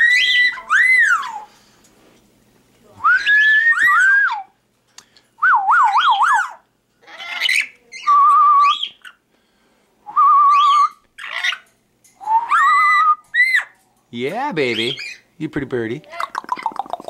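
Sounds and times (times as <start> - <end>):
harsh parrot calls: 0.0 - 1.5, 5.8 - 9.2, 10.5 - 11.7, 12.3 - 13.8, 14.6 - 15.3
parrot warbling trills: 0.0 - 1.5, 5.8 - 9.2, 10.5 - 11.7, 12.4 - 13.8
parrot whistling: 0.0 - 1.5, 3.0 - 4.6, 5.4 - 6.6, 7.2 - 9.2, 10.1 - 11.6, 12.2 - 13.8, 14.7 - 15.2.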